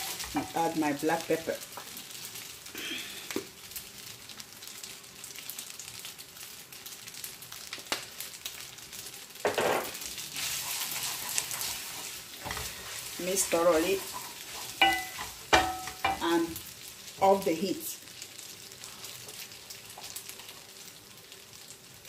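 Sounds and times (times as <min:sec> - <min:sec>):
wooden spoon scraping a pan: 0:00.0 - 0:00.7, 0:09.8 - 0:16.4
pasta sizzling in a pan: 0:00.0 - 0:22.0.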